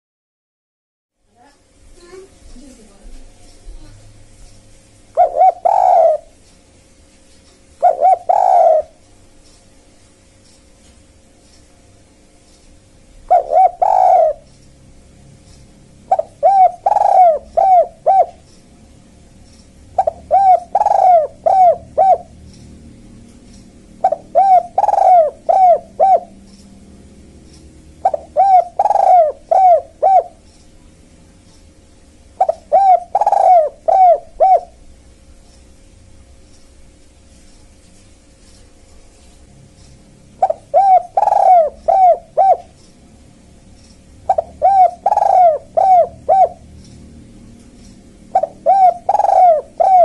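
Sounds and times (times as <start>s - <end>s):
faint steady hum: 1.2s - 50.0s
dove cooing: 5.2s - 6.4s, 7.8s - 9.0s, 13.3s - 14.5s, 16.0s - 18.4s, 19.9s - 22.5s, 24.0s - 26.6s, 27.9s - 30.4s, 32.4s - 34.8s, 40.4s - 42.8s, 44.2s - 46.8s, 48.2s - 50.0s.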